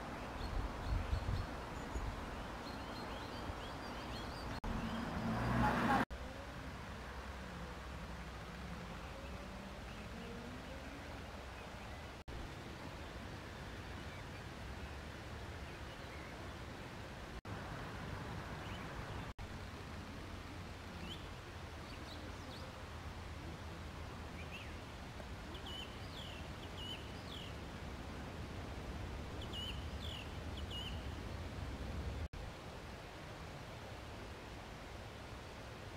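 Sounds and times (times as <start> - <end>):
small birds chirping: 0.0 - 6.0, 24.3 - 27.7, 29.4 - 32.3.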